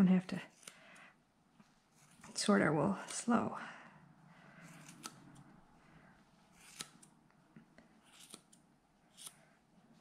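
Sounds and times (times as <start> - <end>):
scissors snipping: 4.7 - 5.5, 6.6 - 7.1, 8.0 - 9.4.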